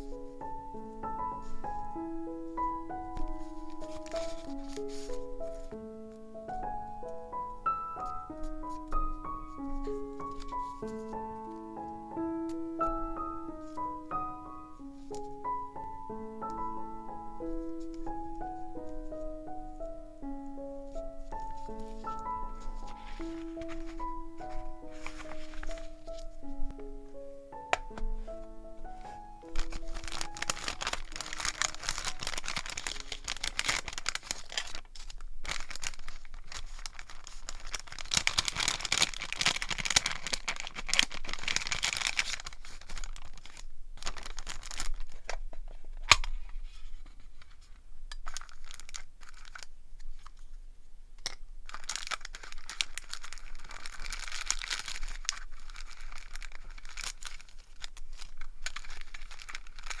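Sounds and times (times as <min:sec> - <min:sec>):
paper rustling and crinkling: 0:02.6 - 0:06.2, 0:08.0 - 0:12.0, 0:20.9 - 0:26.8, 0:27.8 - 0:50.5, 0:51.2 - 1:00.0.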